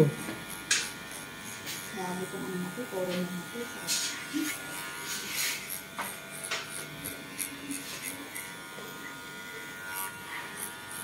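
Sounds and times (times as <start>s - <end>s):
hair clipper buzzing: 0.0s - 11.0s.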